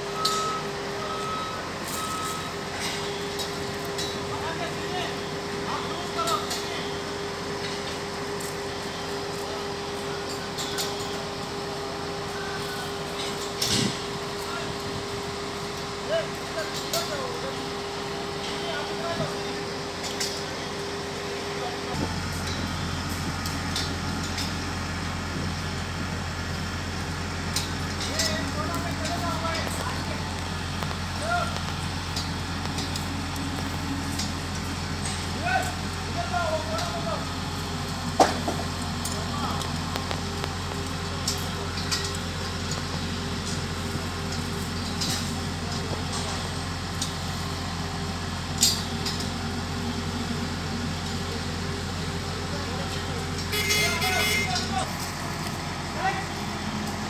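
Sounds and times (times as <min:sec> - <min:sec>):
diesel engine humming: 0:00.0 - 0:57.0
light metal clicks and clanks: 0:39.0 - 0:42.9.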